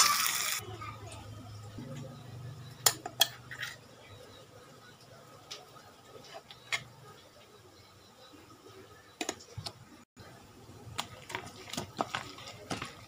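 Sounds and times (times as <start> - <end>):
metal spoon tapping steel bowl: 2.8 - 3.4.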